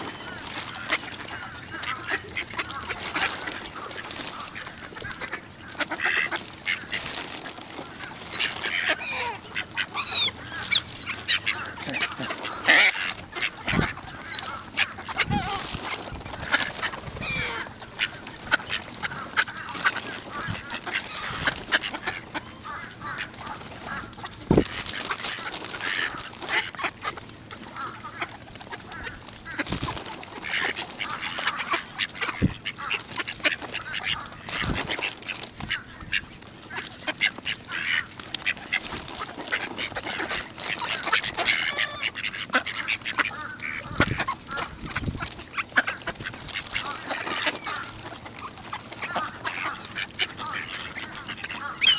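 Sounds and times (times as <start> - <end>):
ducks quacking: 0.0 - 51.9.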